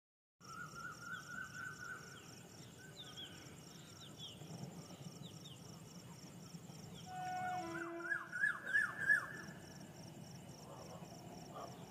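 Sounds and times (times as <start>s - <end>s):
insect chirping: 0.4s - 11.9s
birds calling: 6.9s - 9.6s.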